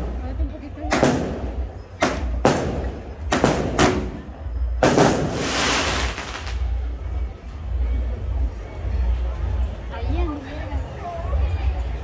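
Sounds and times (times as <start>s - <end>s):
firework bangs: 0.9s - 6.8s.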